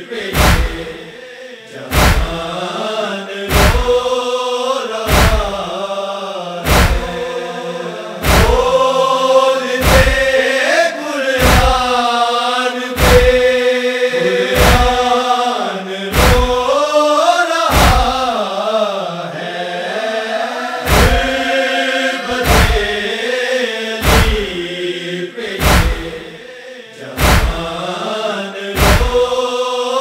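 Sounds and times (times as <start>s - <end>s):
men chanting a lament: 0.0s - 30.0s
deep rhythmic thud: 0.2s - 1.2s, 1.9s - 2.6s, 3.5s - 4.2s, 5.1s - 5.8s, 6.6s - 7.3s, 8.2s - 8.9s, 9.8s - 10.4s, 11.4s - 12.0s, 13.0s - 13.6s, 14.6s - 15.2s, 16.1s - 16.7s, 17.7s - 18.4s, 20.9s - 21.5s, 22.3s - 23.0s, 24.0s - 24.7s, 25.6s - 26.4s, 27.2s - 27.8s, 28.8s - 29.4s.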